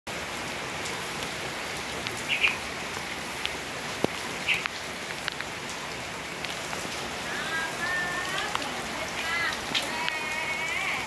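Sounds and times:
heavy rain hissing: 0:00.1 - 0:11.0
drips and taps: 0:02.0 - 0:05.5, 0:08.3 - 0:10.3.

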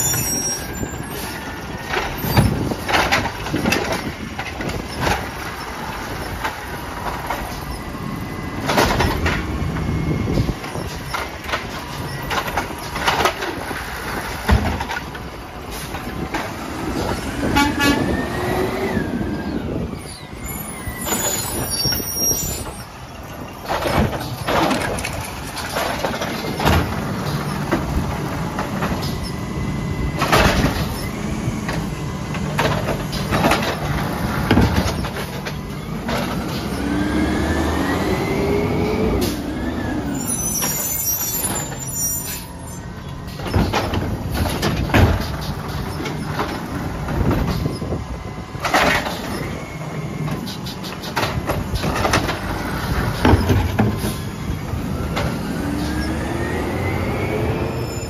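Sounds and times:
hydraulic arm whining: 0:00.0 - 0:58.0
truck engine revving: 0:25.8 - 0:40.3, 0:51.7 - 0:58.0
loud bangs of carts: 0:32.5 - 0:36.4, 0:43.4 - 0:47.8.

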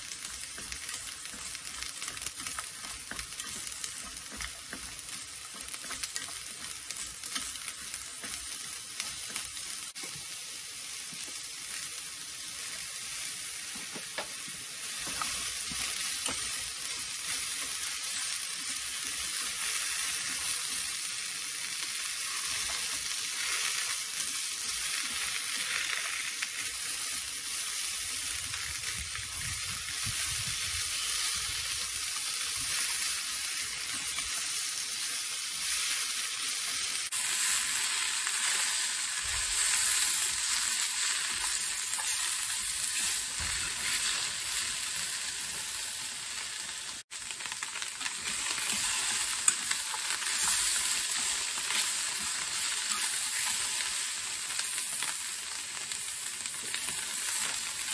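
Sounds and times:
food sizzling in a frying pan: 0:00.0 - 0:57.9
chopsticks turning food: 0:00.1 - 0:10.1, 0:30.9 - 0:45.6, 0:48.0 - 0:54.1.

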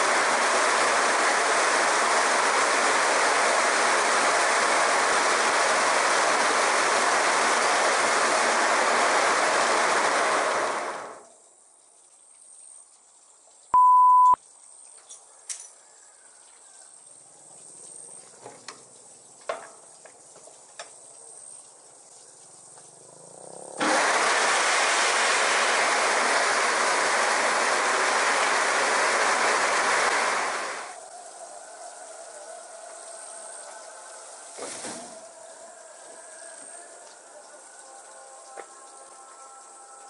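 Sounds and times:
walnut hulling machine rattling: 0:00.0 - 0:11.2, 0:23.8 - 0:31.0
short beep: 0:13.8 - 0:14.4.

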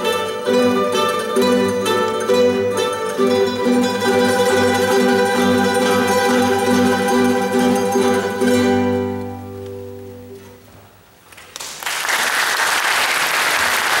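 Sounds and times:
guitar and mandolin chord ringing: 0:00.0 - 0:10.7
audience applause: 0:11.4 - 0:14.0.

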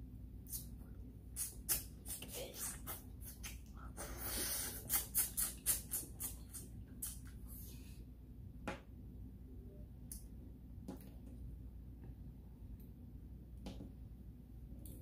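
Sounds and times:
drawn-out mouth noise: 0:01.4 - 0:07.5.

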